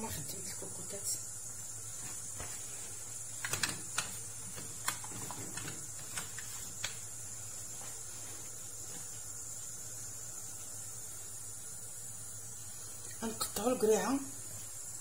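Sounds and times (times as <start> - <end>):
pressure cooker hissing: 0.0 - 15.0.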